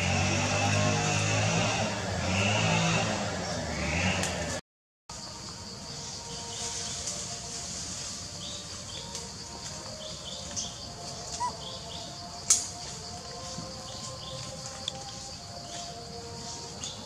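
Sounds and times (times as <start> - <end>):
steady high-pitched hiss: 5.1 - 17.0
small birds chirping: 8.4 - 17.0.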